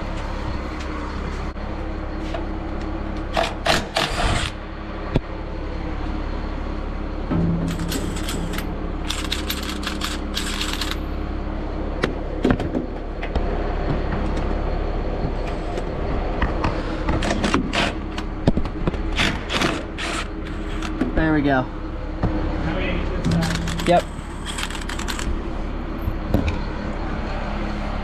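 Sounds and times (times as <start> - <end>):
low mechanical hum: 0.0 - 28.0
power ratchet rattling: 3.4 - 4.6, 7.7 - 11.1, 19.1 - 21.0, 23.3 - 25.4.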